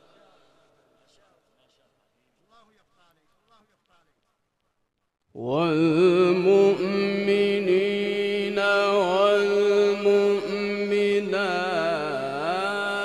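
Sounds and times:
man reciting melodically: 0.0 - 4.3, 5.4 - 13.0.

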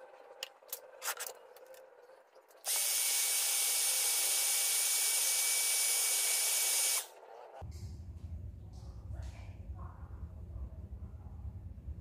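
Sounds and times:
electric drill whirring: 2.6 - 7.1.

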